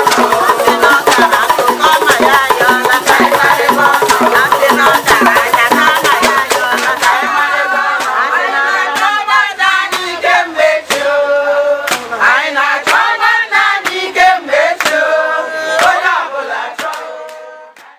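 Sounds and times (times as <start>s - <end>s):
sharp percussive strokes: 0.0s - 11.2s
women singing together: 0.0s - 17.9s.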